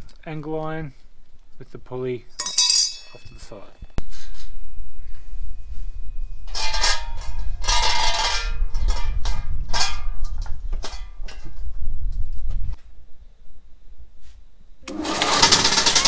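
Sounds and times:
steel bowl clanking and ringing: 0:02.4 - 0:03.4.

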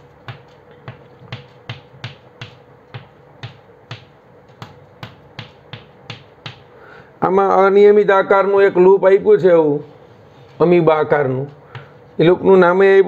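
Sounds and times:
chalk tapping on chalkboard: 0:00.0 - 0:06.7.

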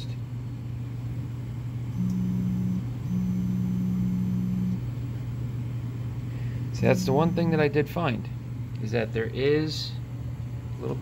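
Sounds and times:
steady low hum: 0:00.0 - 0:11.0
stepper motor whining: 0:02.0 - 0:04.8, 0:06.7 - 0:07.8.

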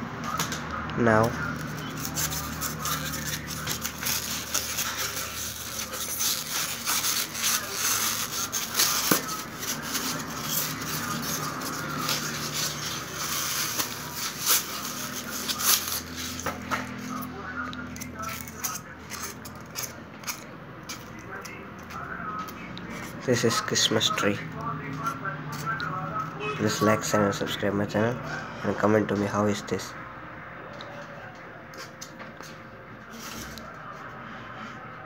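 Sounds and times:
foam rubbing and crackling: 0:01.2 - 0:22.1.

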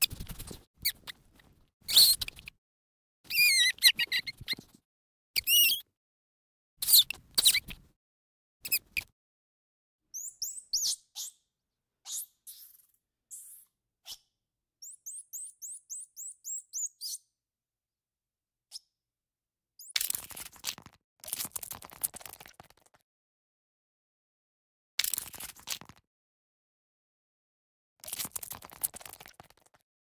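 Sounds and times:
animal squeaks and chirps: 0:01.9 - 0:02.5, 0:03.3 - 0:04.8, 0:05.4 - 0:05.9, 0:06.8 - 0:07.7, 0:10.2 - 0:17.2.

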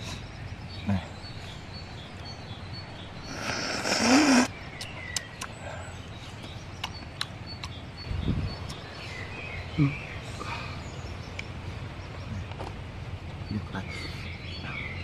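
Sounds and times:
faint birdsong: 0:00.0 - 0:15.0
person slurping: 0:03.3 - 0:04.5
chewing clicks and smacks: 0:04.8 - 0:05.6, 0:06.4 - 0:07.8.

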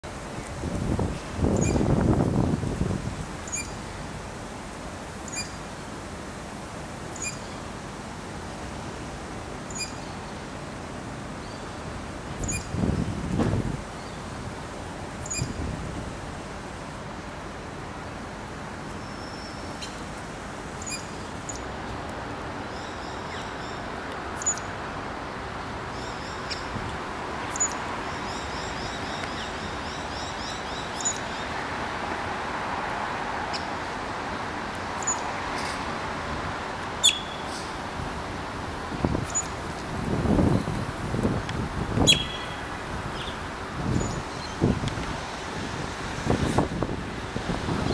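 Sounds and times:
small birds trilling: 0:42.0 - 0:42.6.

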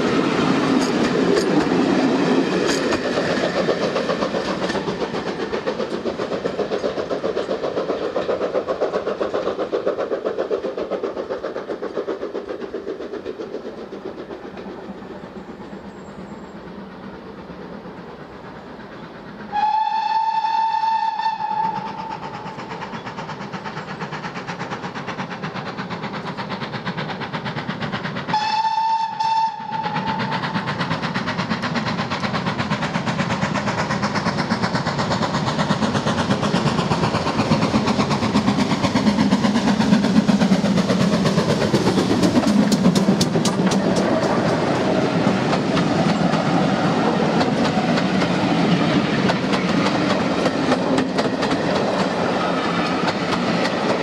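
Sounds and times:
train coaches clattering over rail joints: 0:00.0 - 0:16.3, 0:21.5 - 0:54.0
steam locomotive running: 0:00.0 - 0:54.0
steam locomotive whistle: 0:19.4 - 0:22.5, 0:28.3 - 0:30.6.

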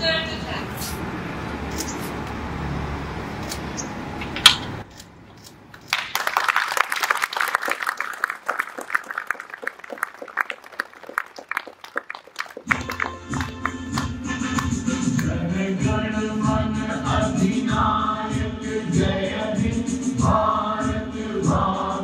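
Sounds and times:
background noise: 0:04.5 - 0:13.1
crowd clapping: 0:05.8 - 0:15.4.

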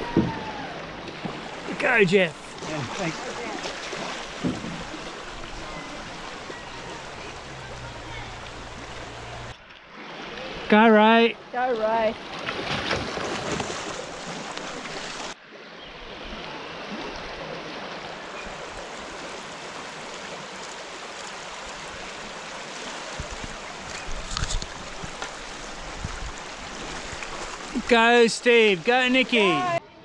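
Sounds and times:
river water rushing over riffle: 0:00.0 - 0:10.8, 0:16.4 - 0:29.8
splashes or knocks: 0:02.5 - 0:09.8, 0:12.2 - 0:15.3.

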